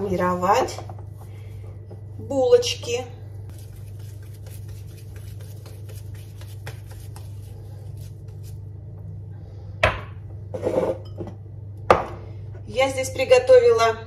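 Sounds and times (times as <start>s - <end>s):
steady low hum: 0.0s - 14.0s
dough squishing and patting: 3.5s - 9.1s.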